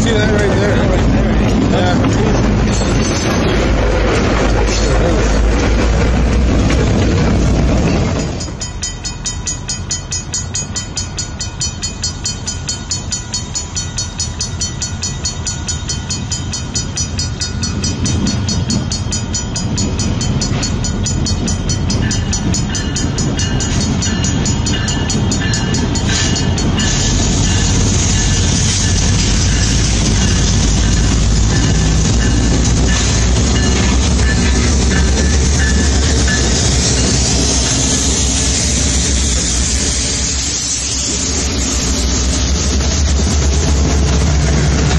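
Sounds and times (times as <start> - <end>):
level-crossing bell ringing: 0.0 - 3.8, 7.9 - 38.2
diesel locomotive engines: 0.0 - 44.9.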